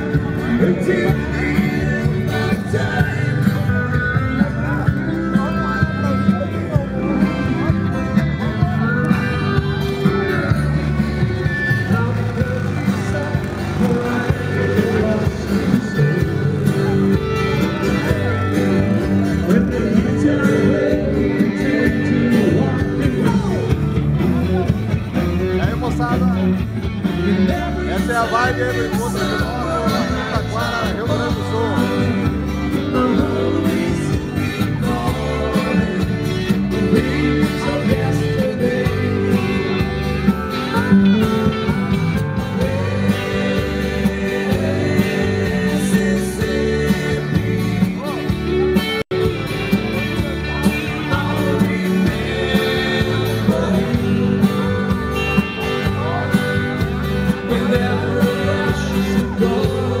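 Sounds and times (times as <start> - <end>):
country band playing: 0.0 - 60.0
man singing: 0.0 - 60.0.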